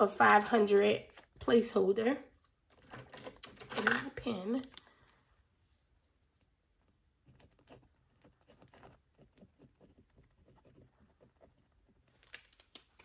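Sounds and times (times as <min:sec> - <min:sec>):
pen scratching and tapping on paper: 0:07.2 - 0:12.2.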